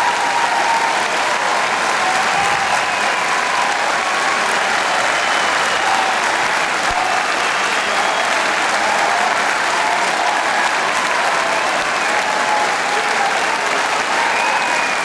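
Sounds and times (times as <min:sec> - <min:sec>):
audience applauding: 0:00.0 - 0:15.0
cheers: 0:00.0 - 0:15.0.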